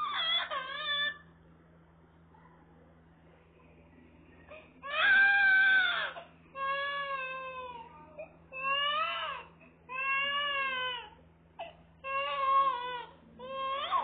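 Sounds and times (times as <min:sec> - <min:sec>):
toddler crying: 0:00.0 - 0:01.2, 0:04.8 - 0:07.9, 0:08.6 - 0:11.2, 0:12.0 - 0:14.0.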